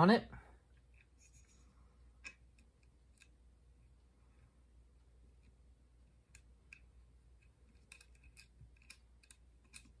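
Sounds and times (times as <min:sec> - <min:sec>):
small metallic clicks: 0:06.2 - 0:10.0.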